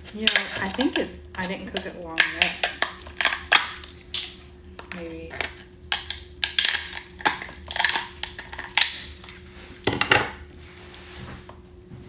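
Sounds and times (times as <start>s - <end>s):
lobster shell crunching: 0.0s - 9.2s.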